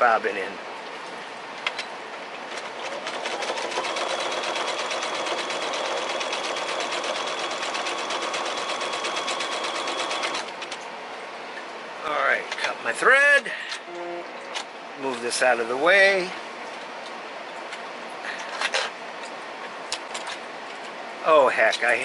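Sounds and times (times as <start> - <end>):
sewing machine stitching: 2.7 - 10.5.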